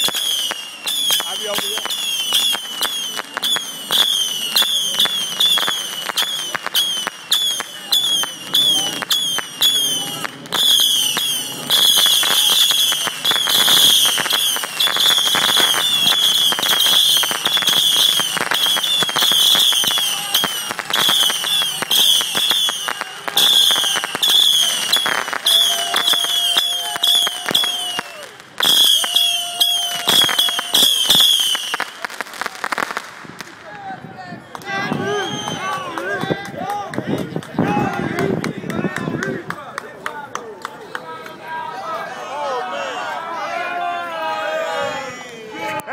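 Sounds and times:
short falling whistles: 0.0 - 22.9, 23.5 - 31.9, 35.1 - 35.8
firework fountain crackling: 0.0 - 41.5.

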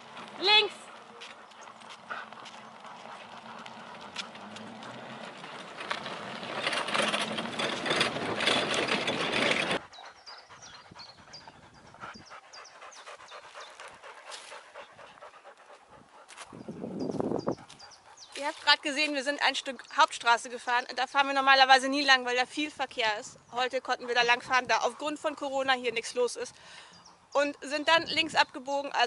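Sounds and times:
cart wheels rolling and rattling: 0.0 - 9.9
dogs panting: 0.0 - 19.9, 23.7 - 27.3.

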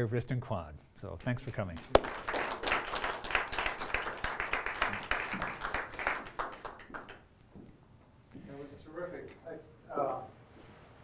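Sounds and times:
audience applause: 1.9 - 7.2.

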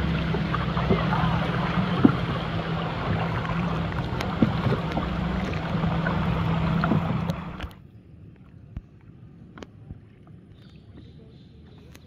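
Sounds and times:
motor running steadily: 0.0 - 7.7
rushing noise: 0.0 - 7.7.

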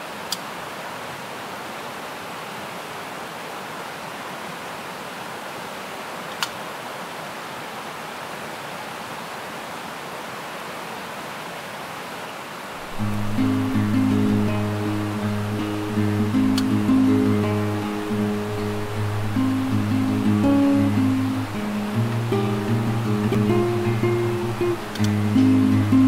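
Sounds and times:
river rushing over rocks: 0.0 - 26.0
short sharp clicks: 24.8 - 25.2.

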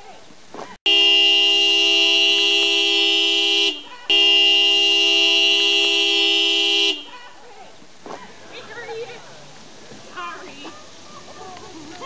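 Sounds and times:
van horn honking: 0.9 - 7.1.

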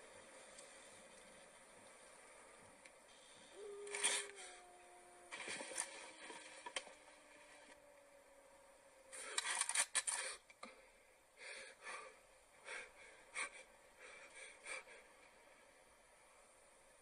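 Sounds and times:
person breathing heavily: 10.2 - 15.4.

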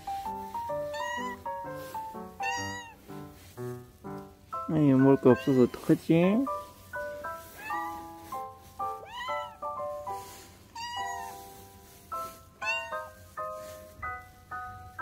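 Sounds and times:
plinking keyboard music: 0.0 - 15.0
cat meowing: 0.7 - 3.0, 5.1 - 6.0, 7.4 - 8.2, 8.9 - 11.6, 12.2 - 13.2.

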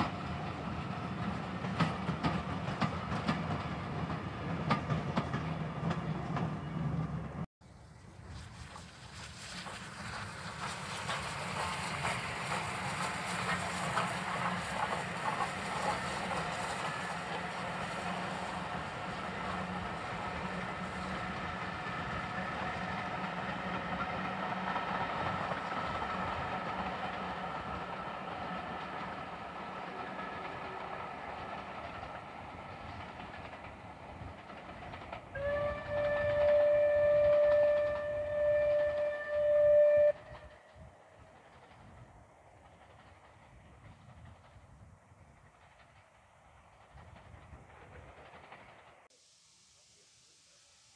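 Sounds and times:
steam locomotive exhaust: 7.8 - 50.9
wheels running on rails: 8.2 - 49.1
steam whistle: 35.3 - 40.6.

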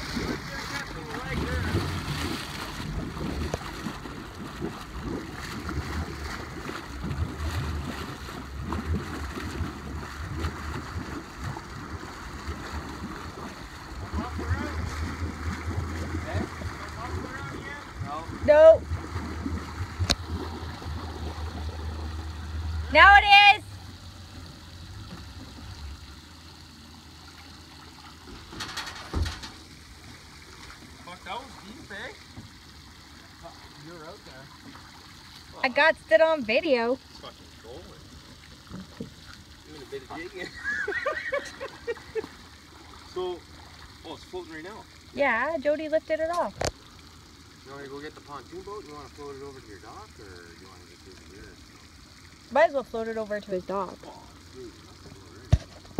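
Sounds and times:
truck engine rumbling: 0.0 - 33.4
wheels splashing through water: 0.0 - 55.9
thump: 28.4 - 29.6.

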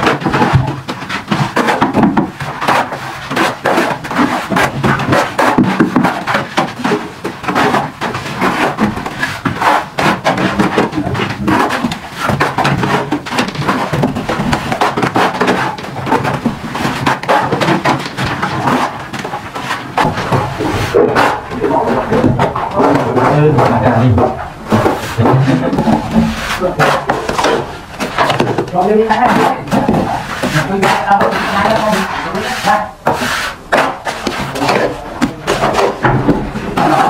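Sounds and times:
trowels scraping and slapping mortar: 0.0 - 37.0.

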